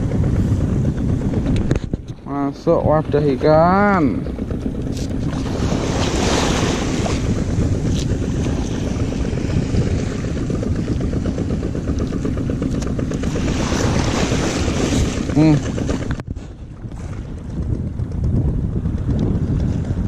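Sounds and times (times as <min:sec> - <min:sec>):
wind buffeting microphone: 0:00.0 - 0:20.0
waves washing over concrete: 0:04.0 - 0:16.3.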